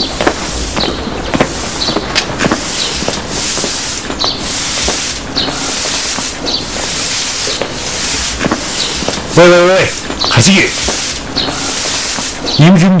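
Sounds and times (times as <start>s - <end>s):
boots crunching through snow: 0.0s - 12.6s.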